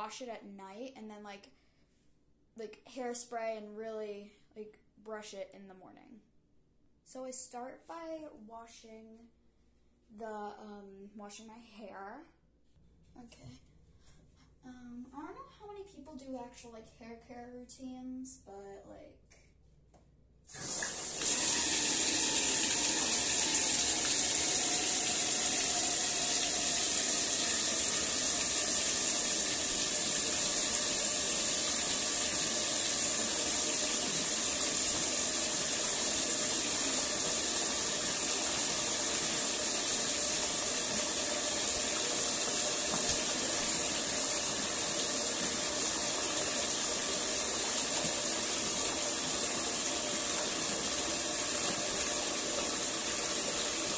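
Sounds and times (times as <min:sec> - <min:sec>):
water pouring into bathtub: 0:20.5 - 0:53.9.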